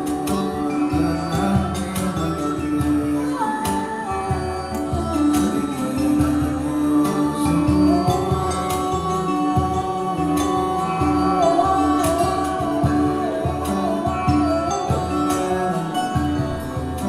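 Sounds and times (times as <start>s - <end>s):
kora plucked: 0.0s - 17.0s
man singing: 0.0s - 17.0s.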